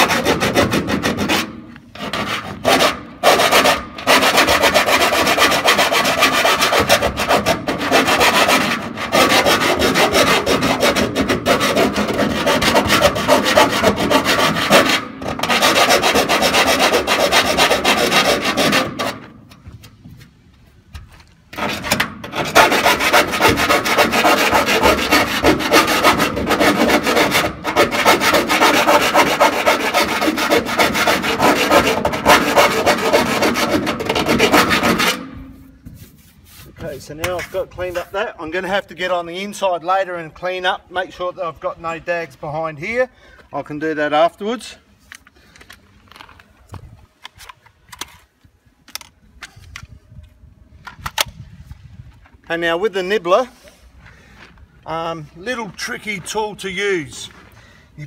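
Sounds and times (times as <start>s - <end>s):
rasping and scraping metal: 0.0s - 20.3s, 20.9s - 38.4s.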